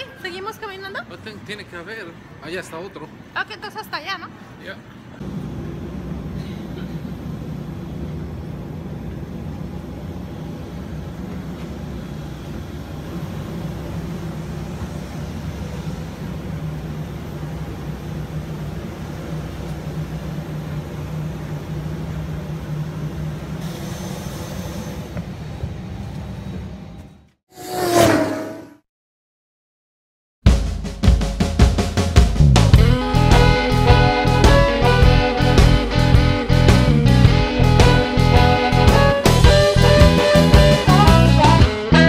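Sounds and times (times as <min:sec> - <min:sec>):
low droning machinery hum: 0:05.2 - 0:24.0
hiss: 0:23.6 - 0:25.2.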